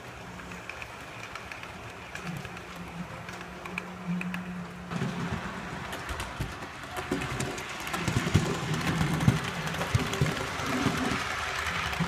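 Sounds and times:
wheels clattering over track: 4.8s - 12.0s
model train motor hum: 5.6s - 12.0s.

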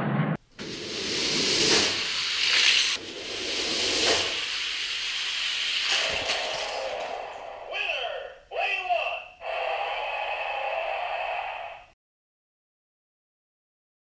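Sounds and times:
toy cars rattling on plastic track: 5.9s - 7.3s.

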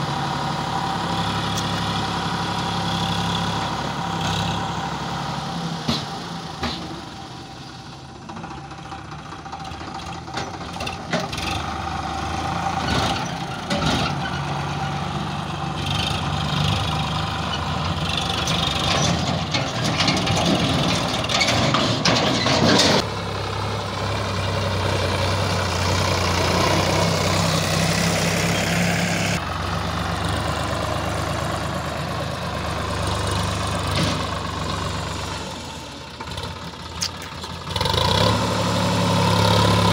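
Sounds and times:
tractor diesel engines running: 0.0s - 39.9s.

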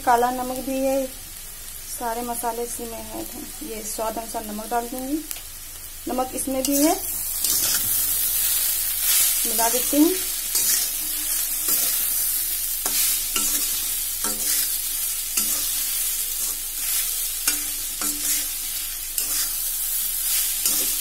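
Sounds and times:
pan sizzling: 0.0s - 21.0s
metal spoon scraping a pan: 6.6s - 21.0s.

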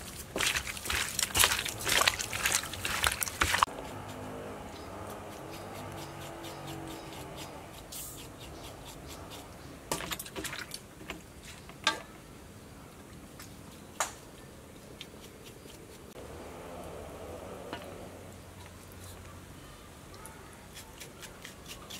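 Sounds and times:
hands squelching raw chicken: 0.0s - 3.7s
kitchen knife scraping: 5.2s - 10.1s.

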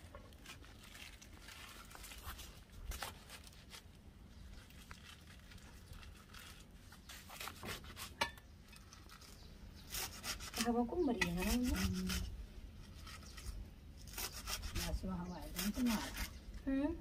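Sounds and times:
greens scraping on steel plate: 7.0s - 16.4s.

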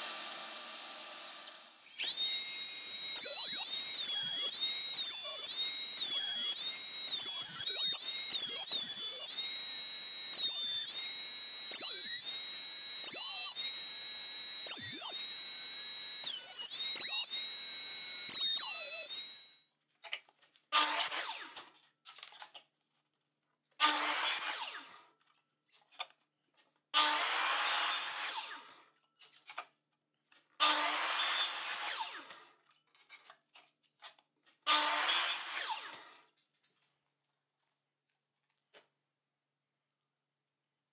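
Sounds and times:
miter saw cutting wood: 0.0s - 19.6s, 20.8s - 21.7s, 23.8s - 25.0s, 27.0s - 28.8s, 30.6s - 32.5s, 34.7s - 36.2s
thickness planer whining: 0.0s - 19.6s.

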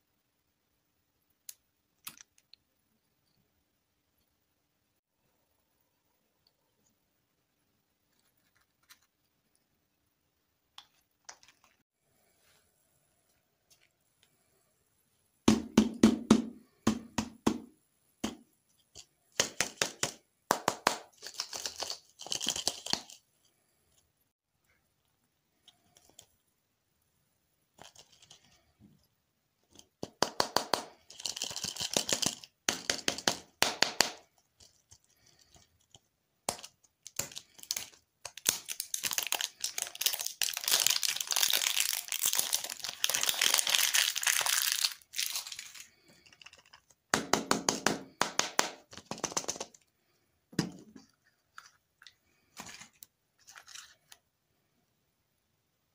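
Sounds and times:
candy wrapper crinkling: 21.0s - 23.3s, 27.8s - 28.5s, 30.8s - 33.2s, 34.1s - 47.1s, 51.5s - 54.2s.

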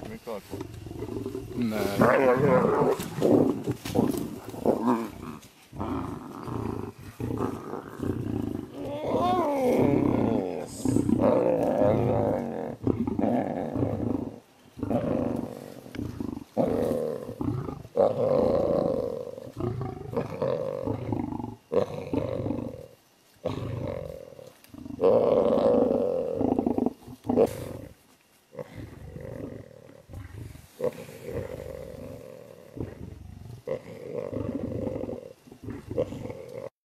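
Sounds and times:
big cats growling: 0.0s - 36.7s.

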